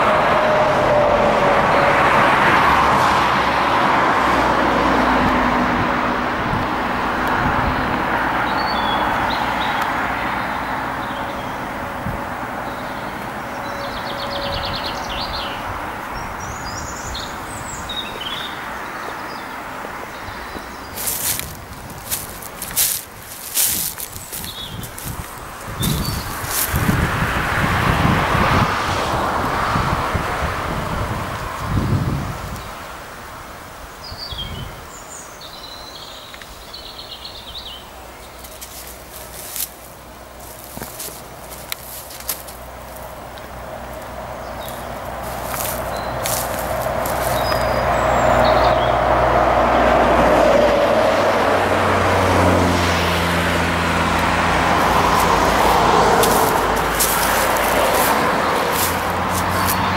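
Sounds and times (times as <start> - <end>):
outdoor ambience: 0.0 - 59.9
road traffic hum: 0.0 - 59.9
songbirds singing: 7.2 - 27.1, 33.5 - 49.2, 54.0 - 59.9
songbird chirping and trilling: 12.6 - 26.8, 44.4 - 49.0
steps rustling in undergrowth: 20.3 - 27.2, 38.0 - 48.6, 53.9 - 59.9
twigs crackling: 20.5 - 27.1, 38.1 - 48.6, 53.4 - 59.9.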